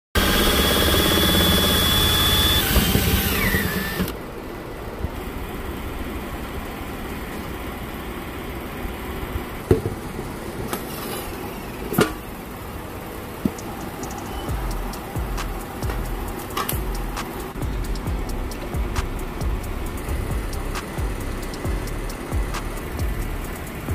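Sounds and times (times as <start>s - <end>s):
cordless drill whining: 0.2s - 4.2s
sharp knocks: 9.7s - 10.3s.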